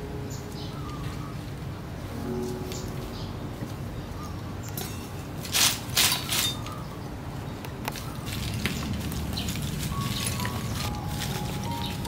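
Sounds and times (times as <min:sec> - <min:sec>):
charcoal scraping and clattering: 0:04.8 - 0:06.8.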